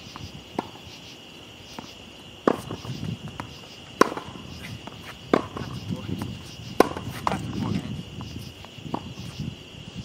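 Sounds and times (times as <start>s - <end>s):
crickets chirping: 0.0s - 10.0s
ball bounces: 1.8s - 7.7s
tennis ball hits: 1.8s - 7.8s.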